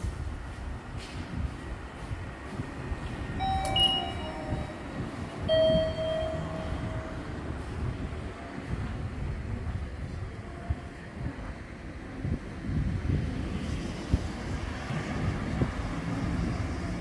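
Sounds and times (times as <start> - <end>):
train rumbling: 0.0 - 17.0
short high tones: 3.4 - 7.3.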